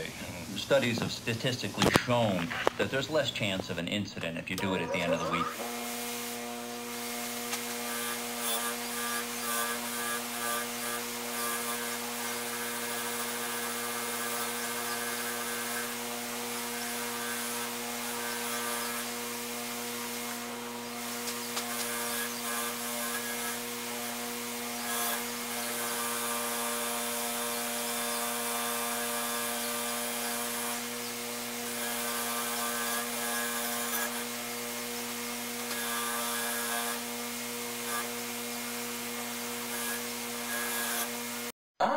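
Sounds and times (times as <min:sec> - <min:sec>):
bench grinder motor hum: 0:04.6 - 0:41.5.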